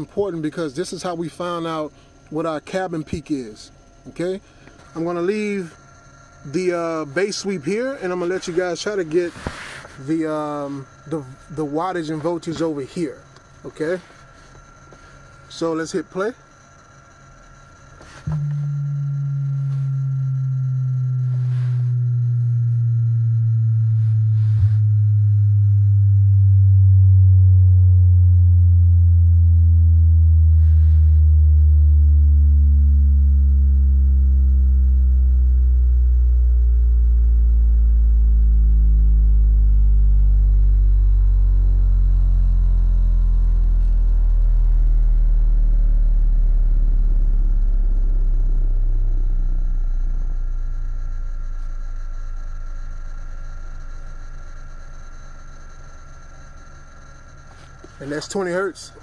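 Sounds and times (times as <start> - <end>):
subwoofer bass sweep tone: 18.1 - 57.1.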